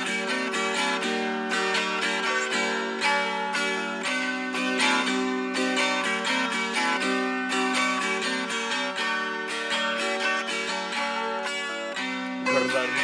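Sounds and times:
plucked string instrument: 0:00.0 - 0:13.0.

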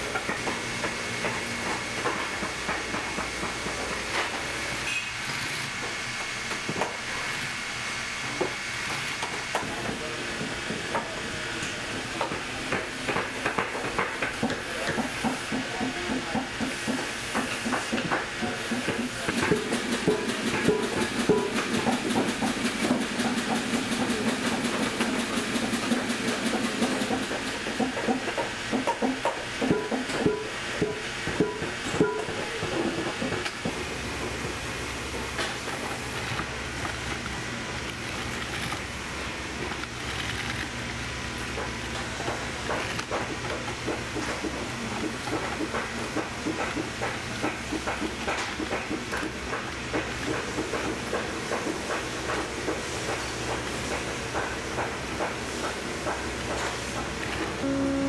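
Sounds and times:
sewing machine running hum: 0:19.2 - 0:28.1.

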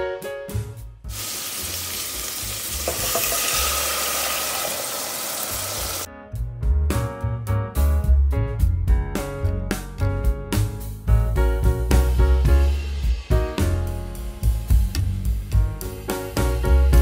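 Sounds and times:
background music: 0:00.0 - 0:17.0
food sizzling in hot oil: 0:01.1 - 0:06.1.

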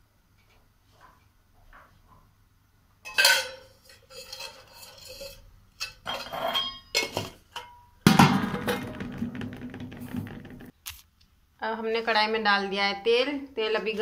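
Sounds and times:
steel pots and utensils clattering: 0:03.0 - 0:09.5
knocks and clinks: 0:03.1 - 0:04.5.

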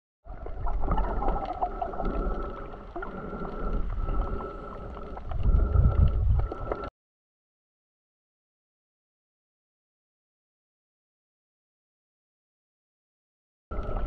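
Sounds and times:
muffled underwater rumble: 0:00.3 - 0:06.9.

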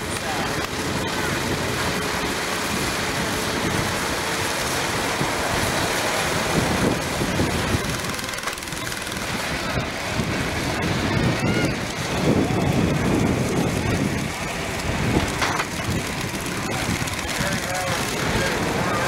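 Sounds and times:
outdoor noise rush: 0:00.0 - 0:19.0
tractor engine idling: 0:00.0 - 0:19.0.

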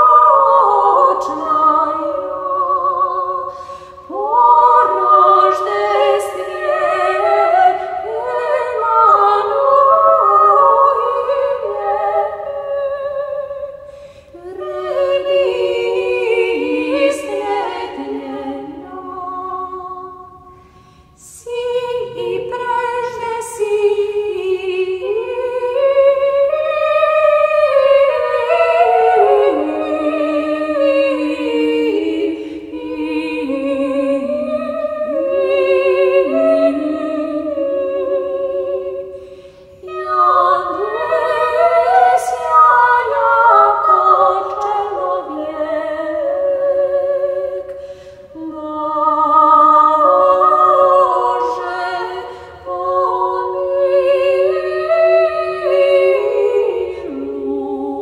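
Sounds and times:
choir singing a hymn: 0:00.0 - 0:58.0.

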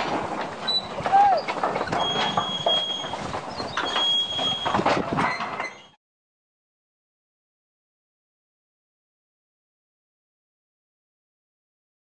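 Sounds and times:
wagons rattling and clanking: 0:00.0 - 0:06.0
thin high squeals: 0:00.6 - 0:06.0.

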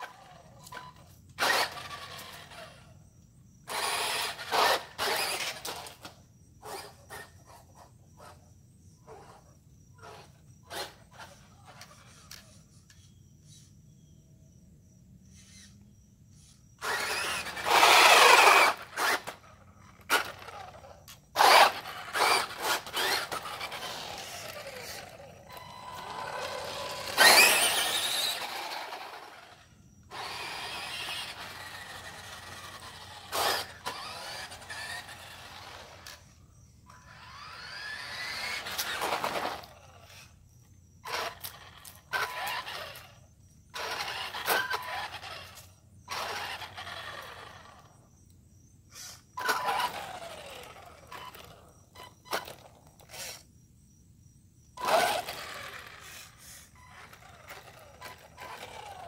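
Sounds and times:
rc car electric motor whining: 0:00.0 - 0:03.0, 0:03.6 - 0:08.4, 0:09.0 - 0:13.7, 0:15.3 - 0:48.1, 0:48.9 - 0:53.5, 0:54.7 - 0:59.0
tyres scrubbing on asphalt: 0:21.4 - 0:36.0.

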